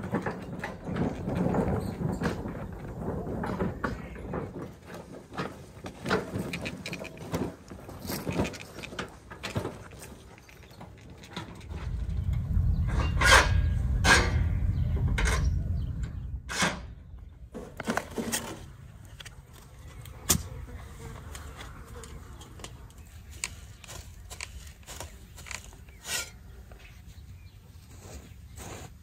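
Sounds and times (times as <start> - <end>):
wheelbarrow wheels rumbling on dirt: 0.0 - 16.4, 20.9 - 29.0
metal clanks and rattles: 0.0 - 19.7.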